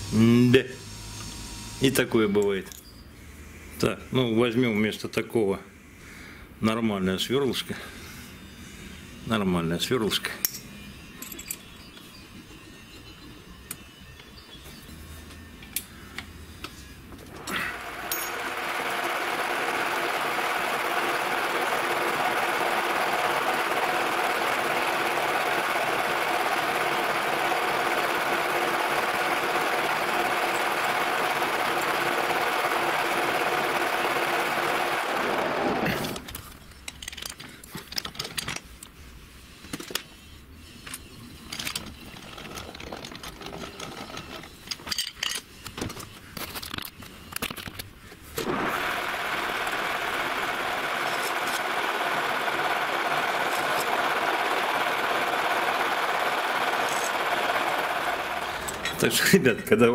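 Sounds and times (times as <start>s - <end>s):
metal parts clicking and knocking: 10.4s - 12.0s, 36.0s - 39.0s, 40.8s - 47.9s, 58.6s - 59.1s
metal lathe humming: 16.8s - 36.4s, 48.4s - 59.6s.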